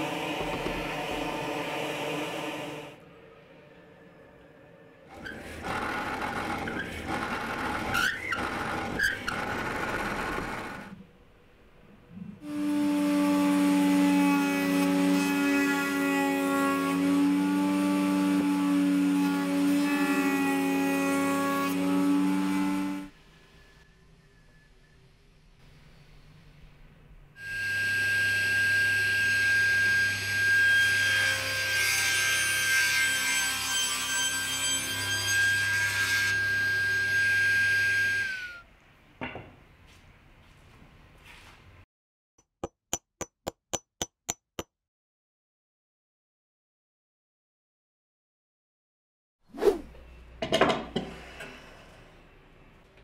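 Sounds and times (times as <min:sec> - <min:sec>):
cutter squealing in wood: 0:05.1 - 0:10.9, 0:33.2 - 0:38.6
table saw whining: 0:27.4 - 0:38.6.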